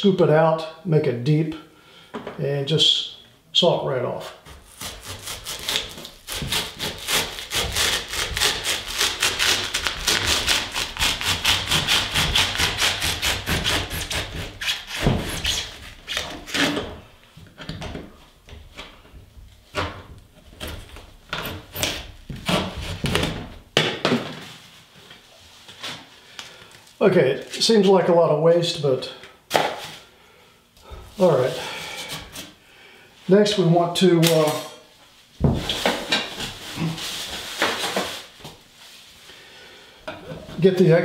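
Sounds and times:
hacksaw blade sawing foam: 4.7 - 16.8.

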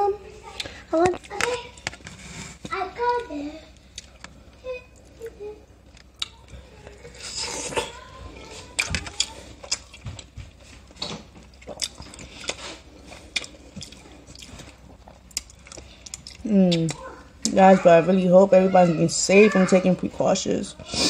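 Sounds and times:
chewing corn on the cob: 6.0 - 17.6.

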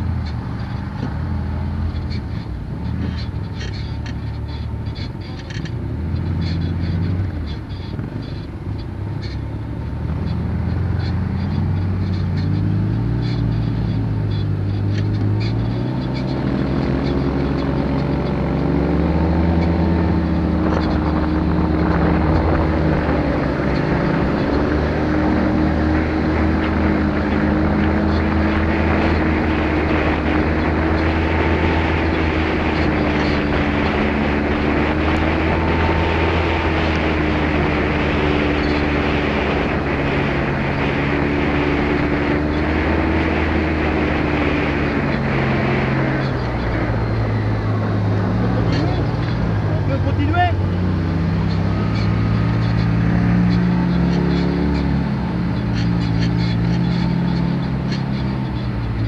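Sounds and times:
quad engine accelerating: 0.0 - 59.0
wind noise: 15.2 - 59.0.

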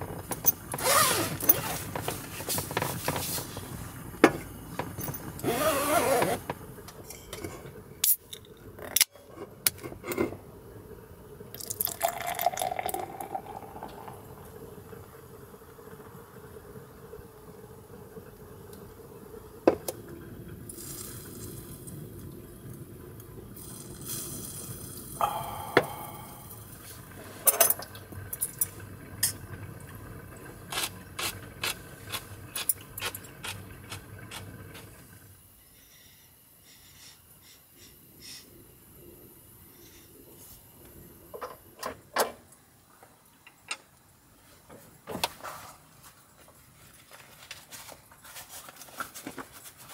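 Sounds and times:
steady low hiss: 0.0 - 30.8
beer fizzing into glass: 11.4 - 17.4.

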